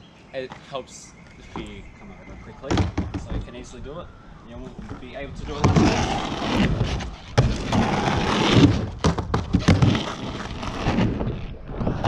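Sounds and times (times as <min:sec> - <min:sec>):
skateboard wheels rumbling: 0:04.6 - 0:12.0.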